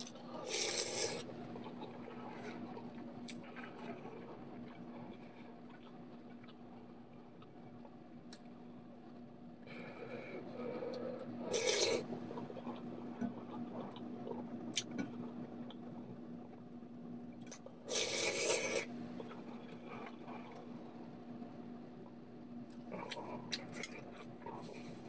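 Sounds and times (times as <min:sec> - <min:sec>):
person slurping broth: 0:00.4 - 0:01.3, 0:11.4 - 0:12.1, 0:17.9 - 0:18.9
wet mouth and swallowing sounds: 0:11.4 - 0:15.9, 0:22.7 - 0:24.8.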